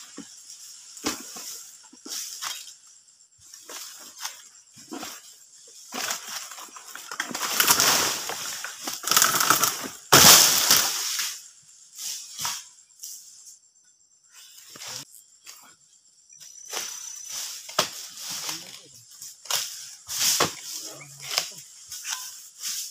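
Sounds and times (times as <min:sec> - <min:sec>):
leaves crackling: 0:05.9 - 0:11.4
palm fronds crashing down: 0:05.9 - 0:11.4.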